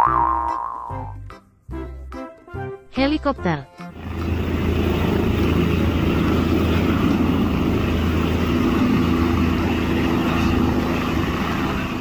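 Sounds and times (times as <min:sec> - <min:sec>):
helicopter rotor chopping: 0:03.9 - 0:12.0.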